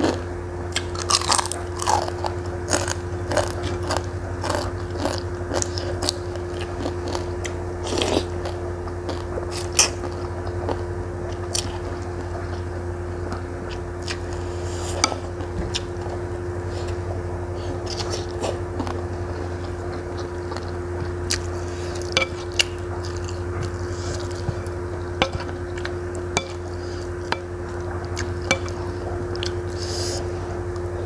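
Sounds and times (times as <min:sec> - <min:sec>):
wet chewing and slurping noodles: 0:00.0 - 0:12.6, 0:17.6 - 0:30.5
steady low hum: 0:00.0 - 0:31.0
crunching crispy cracker: 0:00.8 - 0:10.0.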